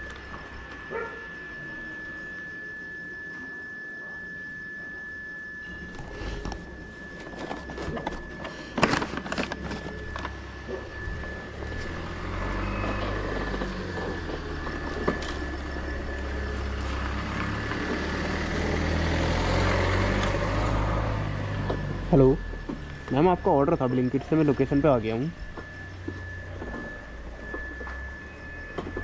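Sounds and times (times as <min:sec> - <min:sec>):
thin steady whine: 0:00.0 - 0:29.0
engine running: 0:05.6 - 0:29.0.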